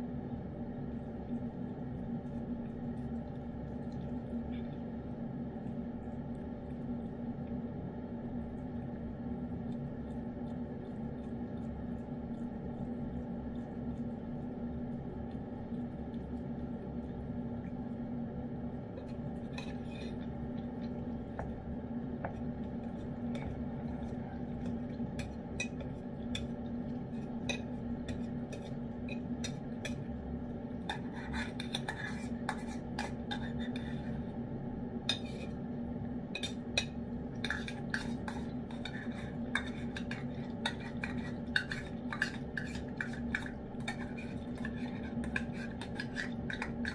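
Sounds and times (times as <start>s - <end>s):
cat licking and chewing: 0.9s - 18.1s, 36.4s - 46.9s.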